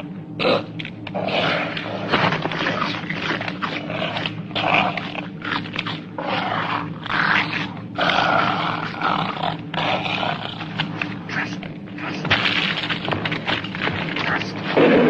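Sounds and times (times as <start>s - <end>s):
steady low hum: 0.0s - 15.0s
dinosaur growls and roars: 0.4s - 15.0s.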